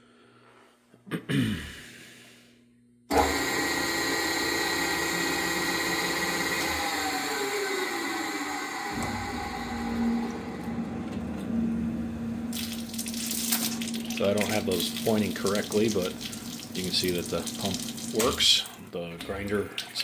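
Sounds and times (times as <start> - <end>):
grinder motor humming and whining: 3.1 - 12.6
machine clunk: 8.8 - 12.5.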